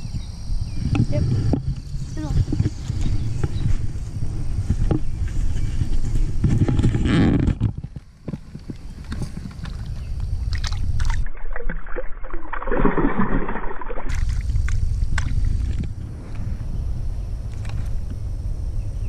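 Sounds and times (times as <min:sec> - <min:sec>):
shallow water sloshing: 0:08.3 - 0:15.9
low rumble: 0:08.7 - 0:19.0.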